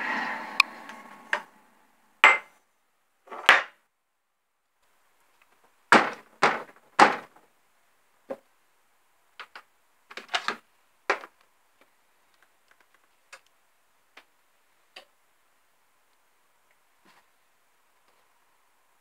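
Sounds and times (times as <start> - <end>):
faint steady hiss: 0.0 - 5.9, 7.3 - 19.0.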